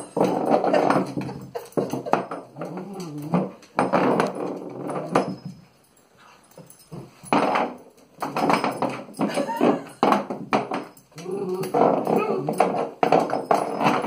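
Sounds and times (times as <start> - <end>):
metal vase knocking and scraping on floor: 0.0 - 5.7, 6.6 - 14.0
dog growling: 11.2 - 12.6.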